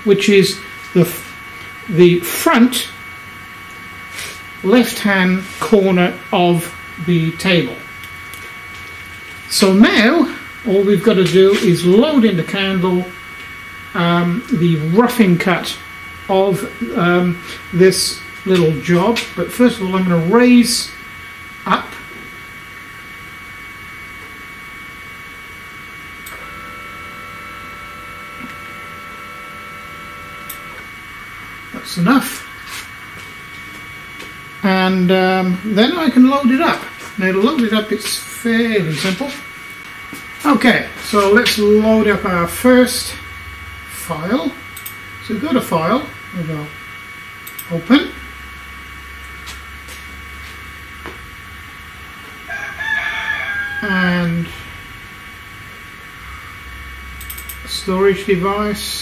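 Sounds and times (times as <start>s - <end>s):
stepper motor whine: 0.0s - 52.4s
constant background hum: 0.0s - 59.0s
motor click: 26.2s - 26.6s, 30.4s - 30.8s, 47.4s - 47.7s, 57.2s - 57.6s
computer mouse clicks: 57.2s - 57.6s.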